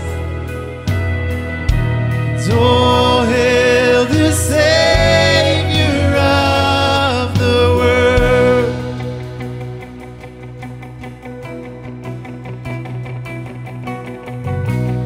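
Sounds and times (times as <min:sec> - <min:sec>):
low sustained bass: 0:00.0 - 0:15.0
man singing: 0:02.4 - 0:09.4.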